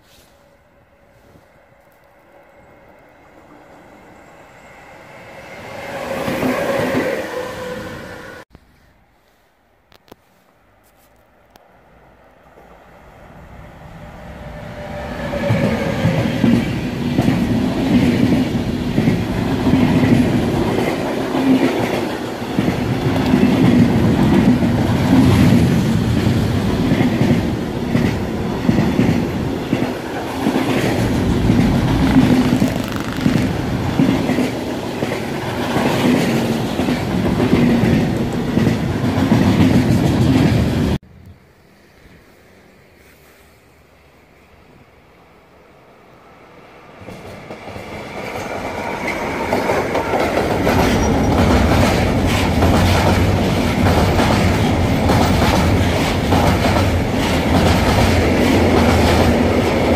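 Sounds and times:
electric locomotive whine: 0:00.0 - 0:08.4, 0:11.6 - 0:36.3
freight train rumble: 0:11.7 - 0:41.0, 0:46.1 - 0:59.9
wheels clattering over rails: 0:28.0 - 0:35.2.

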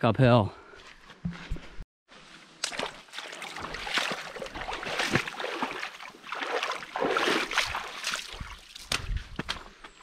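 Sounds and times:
boots splashing through water: 0:02.6 - 0:09.7.

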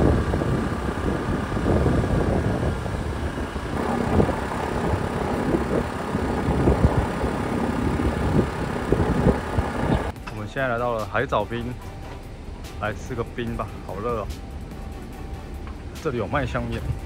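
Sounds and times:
wind buffeting microphone: 0:00.0 - 0:10.1
motor scooter engine: 0:00.0 - 0:10.2.

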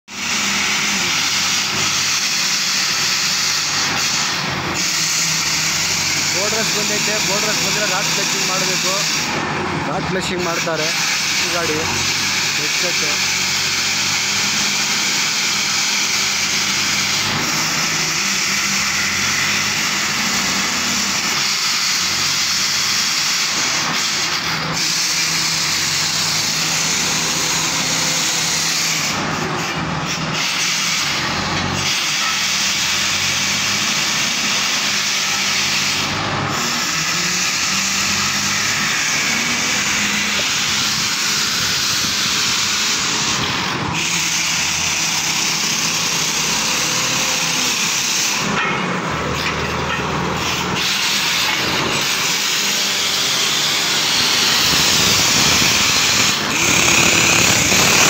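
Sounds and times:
engine hum: 0:00.1 - 0:21.4, 0:32.8 - 0:58.0
compressed air hissing: 0:30.2 - 0:58.0.

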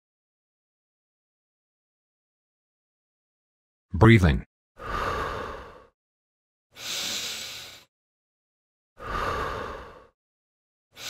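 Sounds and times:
person breathing: 0:04.8 - 0:06.0, 0:06.7 - 0:07.9, 0:09.0 - 0:10.2.

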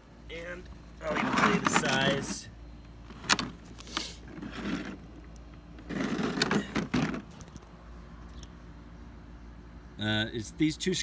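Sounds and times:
scraping rustles: 0:01.0 - 0:02.4, 0:03.1 - 0:07.7.

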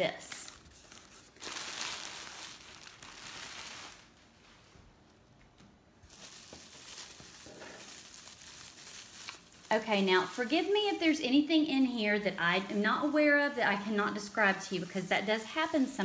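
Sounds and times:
plastic packing crinkling: 0:00.0 - 0:04.4, 0:06.0 - 0:16.0.

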